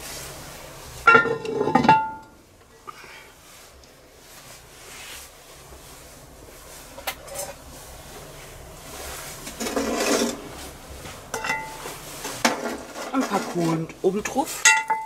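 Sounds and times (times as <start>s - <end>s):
charcoal briquettes rattling: 6.8s - 15.0s.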